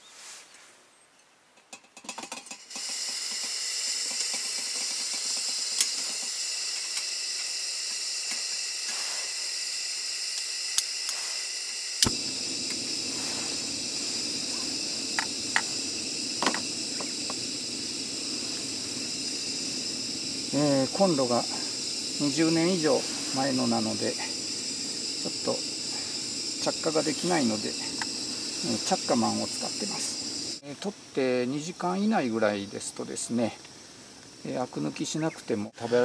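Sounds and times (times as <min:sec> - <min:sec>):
gas hissing from stove burner: 0:01.8 - 0:36.0
low rush of flame: 0:11.2 - 0:31.2
lighter click: 0:12.0 - 0:13.0.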